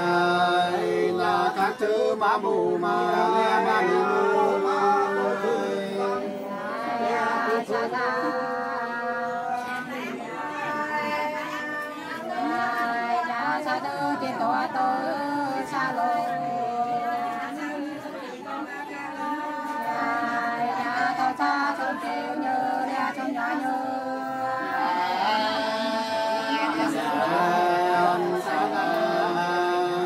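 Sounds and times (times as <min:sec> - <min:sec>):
women singing unaccompanied: 0:00.0 - 0:30.0.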